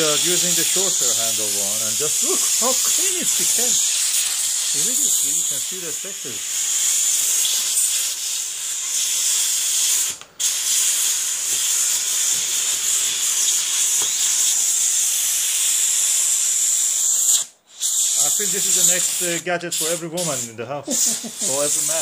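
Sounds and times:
steam cleaner hissing: 0.0 - 22.0.

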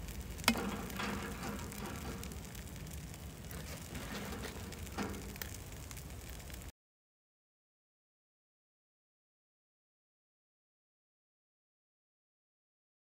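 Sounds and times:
sausages simmering in a pan: 0.0 - 6.7
wood fire crackling: 0.0 - 6.7.

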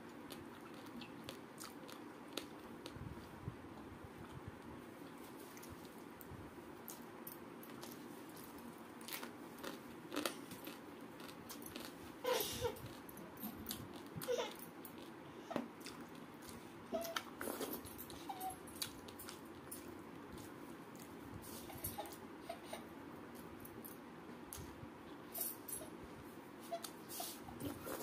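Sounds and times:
wet chewing and lip-smacking: 0.1 - 3.0.

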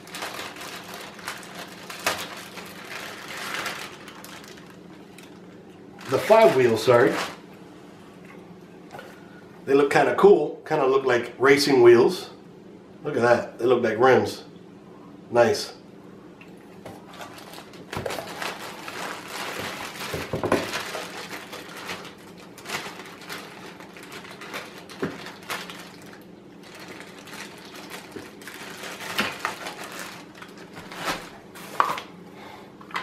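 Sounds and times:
plastic bags rustling: 0.0 - 7.5, 16.9 - 32.1.

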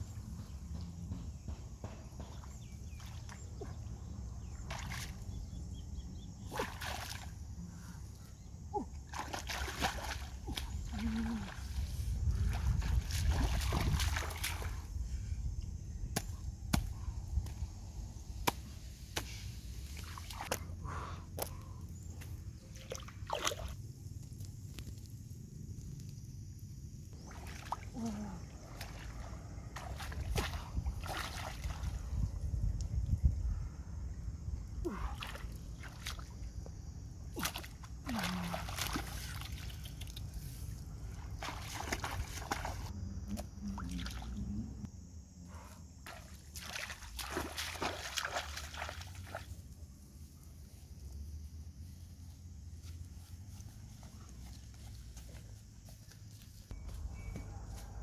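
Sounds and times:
stream water sloshing and splashing: 2.3 - 5.4, 6.4 - 7.5, 8.8 - 14.9, 22.6 - 23.8, 27.2 - 32.3, 34.9 - 44.9, 46.1 - 49.7.

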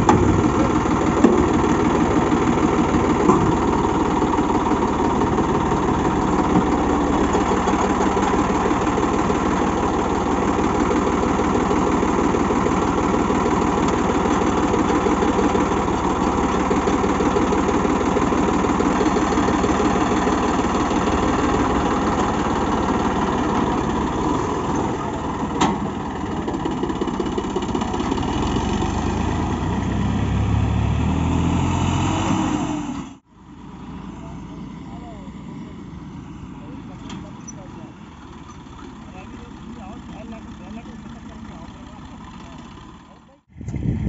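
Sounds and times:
faint engine: 0.0 - 44.0
tractor diesel engine under load: 0.0 - 44.0.

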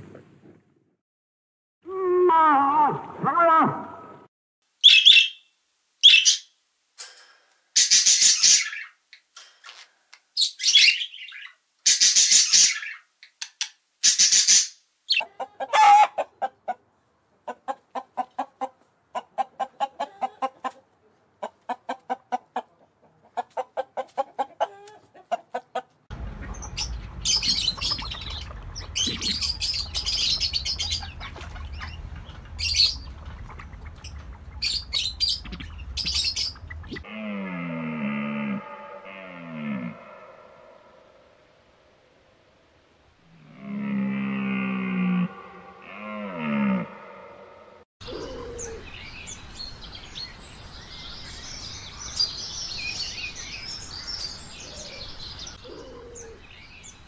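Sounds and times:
high bird chirps: 4.8 - 6.5, 26.1 - 37.0
macaws squawking: 14.0 - 16.8, 23.4 - 37.1.

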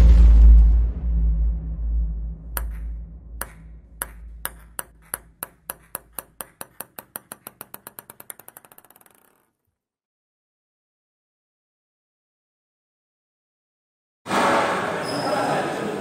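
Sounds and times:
low rumble: 0.0 - 4.5
table tennis ball bouncing: 2.6 - 9.6.

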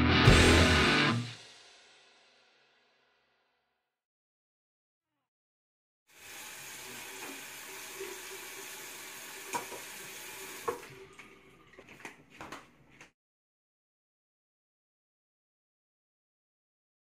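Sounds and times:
faucet running into basin: 6.1 - 12.0.

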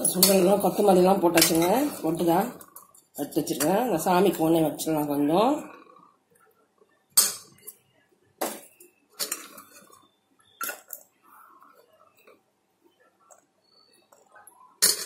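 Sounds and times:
metal spoon clinking on pan: 0.0 - 2.1, 7.1 - 7.8.

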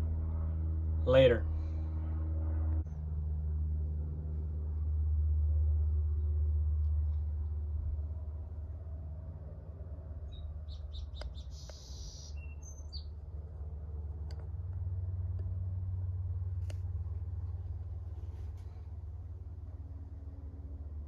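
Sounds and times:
steady low hum: 0.0 - 21.0
high bending bird chirps: 10.3 - 13.2.

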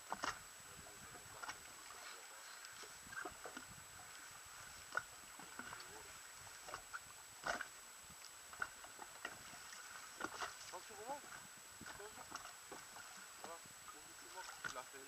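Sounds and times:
clicks and knocks on a boat: 0.0 - 0.4, 6.6 - 7.7, 8.5 - 9.6, 10.2 - 10.8, 14.6 - 14.8.

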